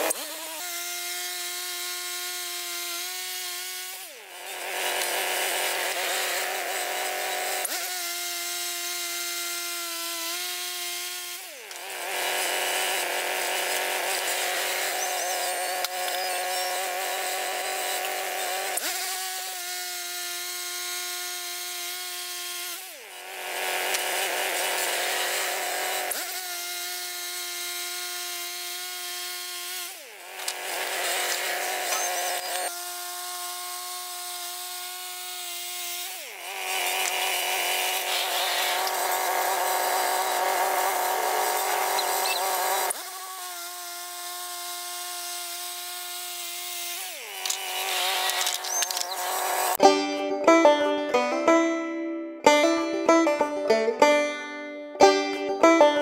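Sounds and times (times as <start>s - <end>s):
sawmill engine running: 0.0s - 19.5s, 20.1s - 33.1s, 34.0s - 56.0s
band saw blade cutting log: 0.0s - 56.0s.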